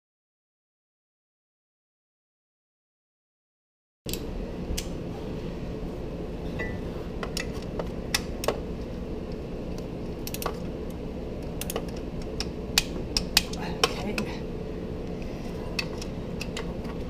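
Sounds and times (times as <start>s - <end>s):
steady low hum: 4.1s - 17.0s.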